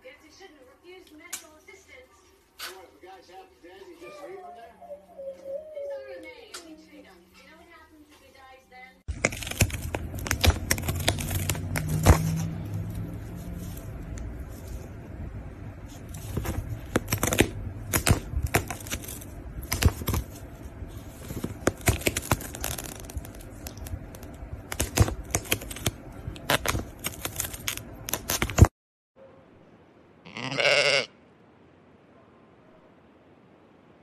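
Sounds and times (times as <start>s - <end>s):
kitten chewing cardboard: 9.1s - 15.0s, 15.9s - 28.7s
sheep bleating: 30.2s - 31.2s.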